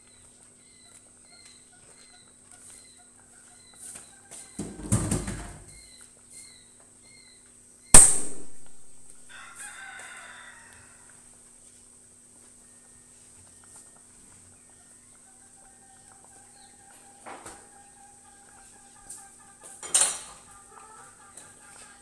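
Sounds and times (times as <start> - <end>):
domestic fowl calling: 0.2 - 7.4, 8.6 - 11.3, 12.4 - 22.0
sharp ringing bang: 8.0 - 9.1.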